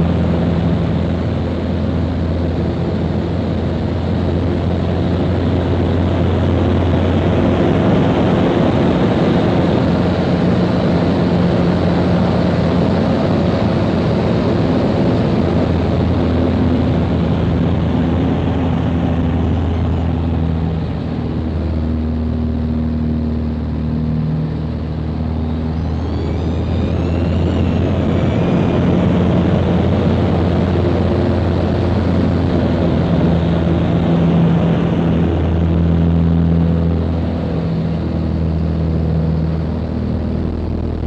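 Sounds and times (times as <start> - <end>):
microlight engine and propeller: 0.0 - 41.0
heavy wind rush: 24.8 - 41.0.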